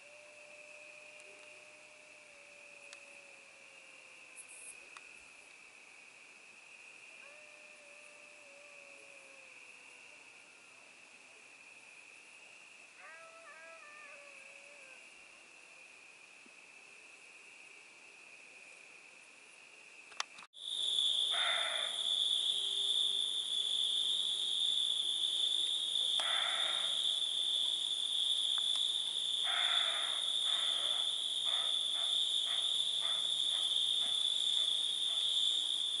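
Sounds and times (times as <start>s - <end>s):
crickets trilling: 0.0s - 36.0s
short low insect calls: 0.0s - 36.0s
click: 2.9s - 3.1s, 20.1s - 20.5s, 28.6s - 28.9s.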